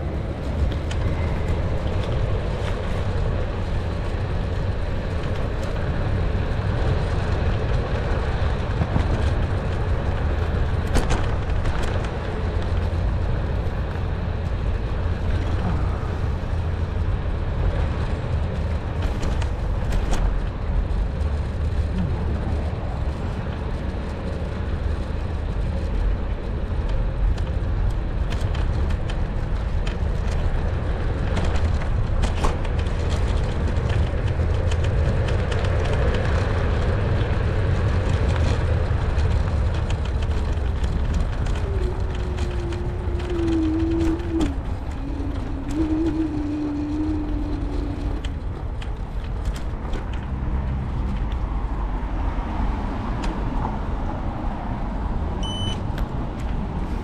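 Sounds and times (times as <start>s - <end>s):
wind and road noise: 0.0s - 57.0s
scooter clicks and rattles: 23.2s - 51.4s
wavering hum: 41.2s - 49.5s.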